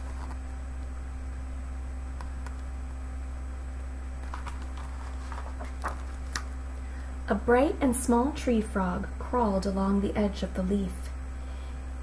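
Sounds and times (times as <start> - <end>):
paper pages handled: 0.0 - 0.5, 4.2 - 6.6
low electrical hum: 0.0 - 12.0.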